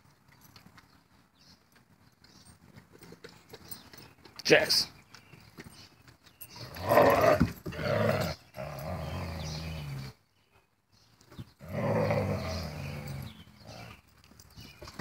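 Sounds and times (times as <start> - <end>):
dogs growling: 6.5 - 10.2, 11.6 - 14.1.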